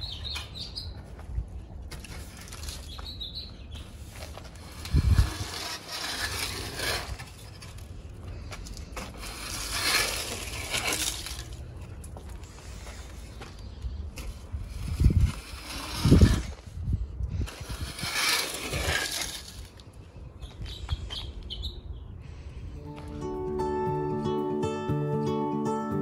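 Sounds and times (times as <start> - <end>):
rake scraping leaves on ground: 2.0 - 3.0, 3.8 - 19.9.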